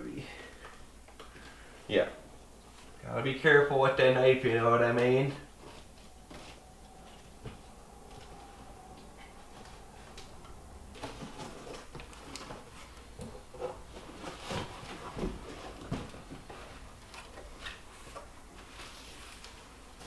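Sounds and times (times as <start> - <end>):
cardboard box rustling and scraping: 10.9 - 16.9.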